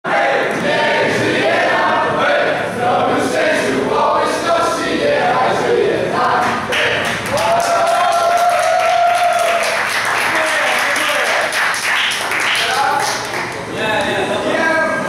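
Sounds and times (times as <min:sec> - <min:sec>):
group of people singing: 0:00.0 - 0:07.2
hand clapping: 0:06.4 - 0:13.6.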